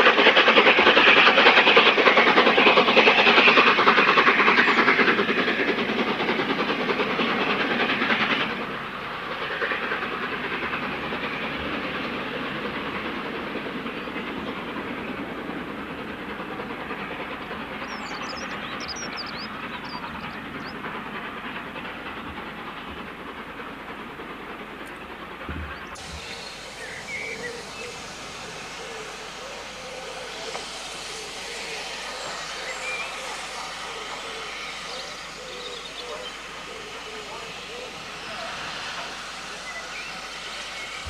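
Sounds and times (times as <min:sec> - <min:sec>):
rumble of train coaches: 0:00.0 - 0:41.0
steam locomotive working: 0:00.0 - 0:41.0
bird chirps: 0:17.8 - 0:20.8.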